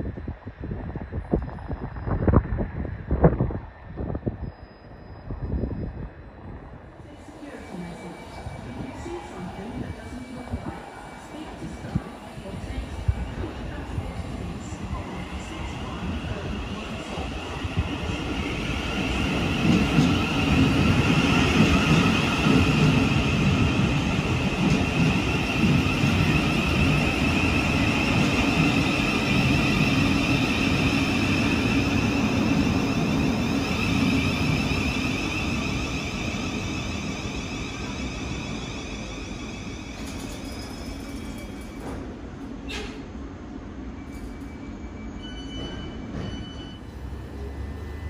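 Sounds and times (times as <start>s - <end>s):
train high whine: 0.1s - 43.1s, 43.8s - 48.0s
train wheels rumbling on rails: 7.7s - 43.1s, 45.2s - 48.0s.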